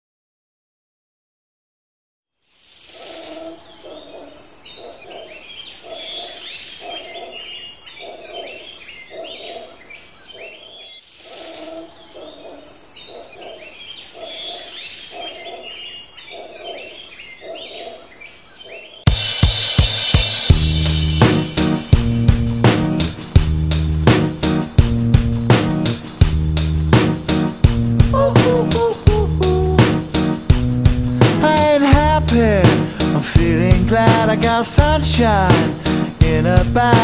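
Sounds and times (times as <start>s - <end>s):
birds chirping and twittering: 2.4s - 19.1s, 20.9s - 33.2s.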